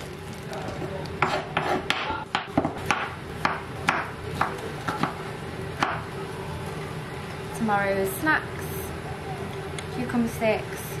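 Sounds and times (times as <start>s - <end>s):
knife chopping on cutting board: 1.2s - 5.2s.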